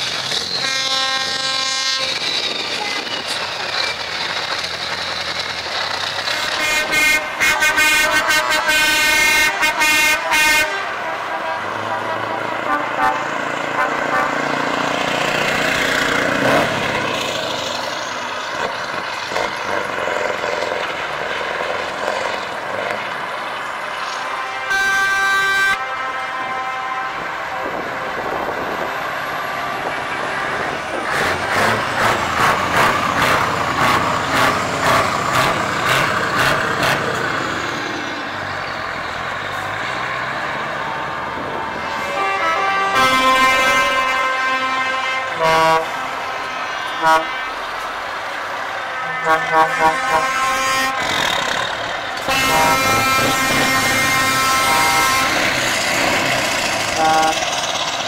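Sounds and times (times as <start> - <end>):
diesel truck engine running rough: 0.0 - 58.0
truck horn: 0.4 - 3.1, 6.2 - 15.0, 24.0 - 28.8, 29.4 - 36.6, 39.9 - 48.0, 48.6 - 57.6.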